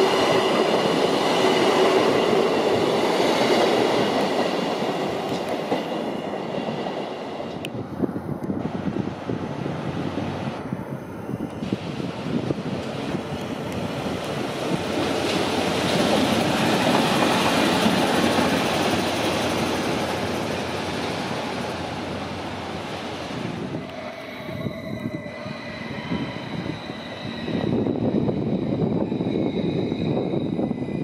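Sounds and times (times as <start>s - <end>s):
electric train whine: 0.0s - 31.0s
diesel locomotive running: 7.4s - 31.0s.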